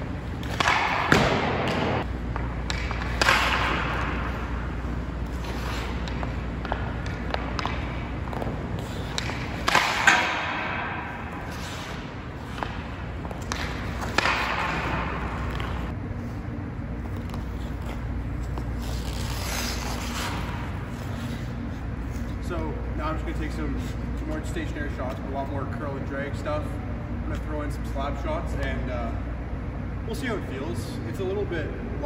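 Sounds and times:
hockey stick striking puck: 0.4 - 4.5, 5.3 - 15.9.

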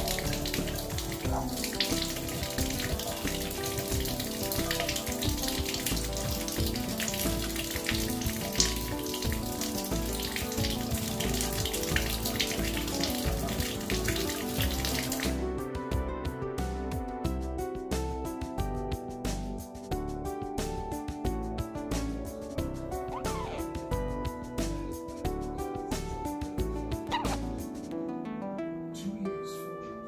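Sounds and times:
water splashing on tiled floor: 0.0 - 15.4
background music: 0.0 - 30.0.

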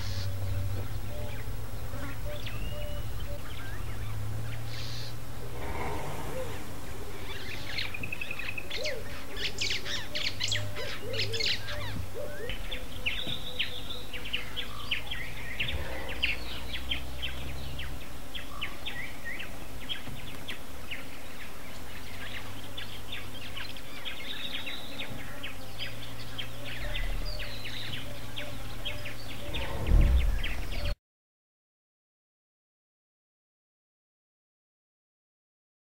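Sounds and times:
birds chirping and trilling: 0.0 - 31.0
low bird calls: 0.0 - 31.0
low hum: 26.1 - 31.0
loud low thump: 29.5 - 31.0.

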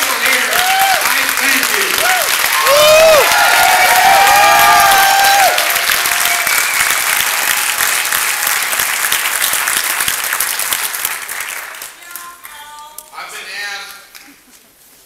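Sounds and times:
people cheering: 0.0 - 10.0
audience applauding: 0.0 - 12.6.

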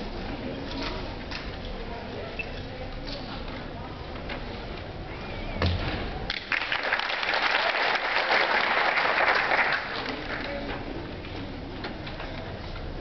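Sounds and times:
audience applauding: 6.3 - 10.7.

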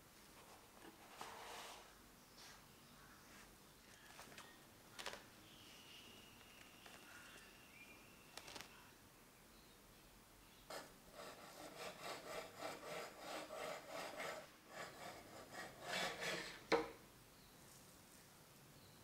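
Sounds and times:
knife sawing through cake: 11.2 - 16.5.

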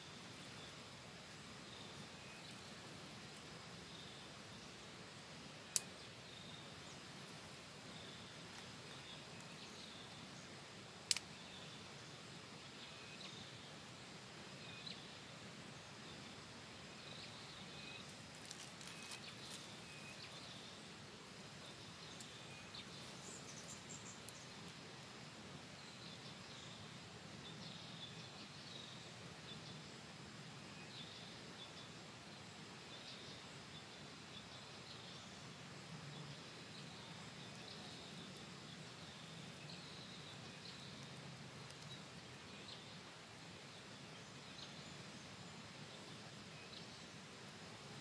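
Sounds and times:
faint outdoor ambience: 0.0 - 48.0
sharp clicks: 11.1 - 11.3.

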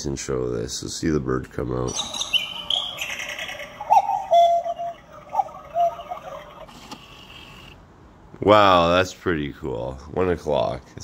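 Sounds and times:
electronic cuckoo clock call: 1.9 - 7.8.

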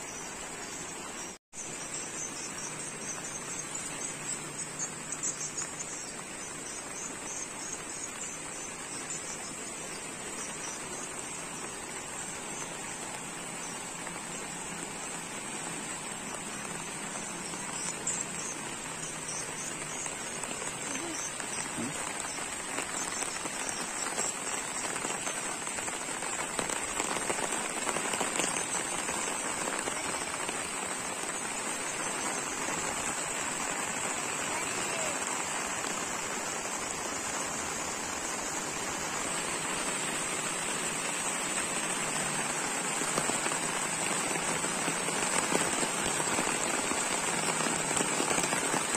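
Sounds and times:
fast-flowing river: 0.0 - 48.9
steady rain falling: 0.0 - 48.9.

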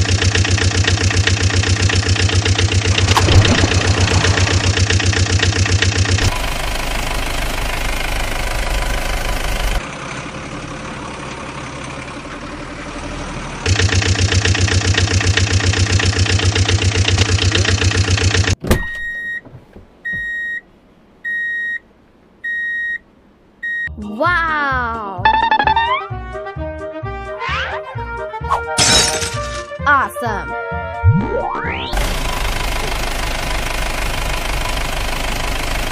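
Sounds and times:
truck engine running: 0.0 - 18.6, 31.1 - 35.9
vehicle reversing alarm beeps: 18.8 - 20.6, 21.2 - 21.8, 22.4 - 23.0, 23.6 - 23.9.

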